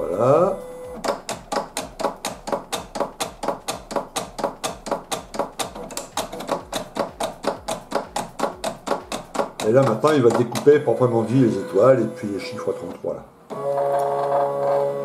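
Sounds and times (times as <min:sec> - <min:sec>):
cutting machine clicking rapidly: 0:01.0 - 0:12.2.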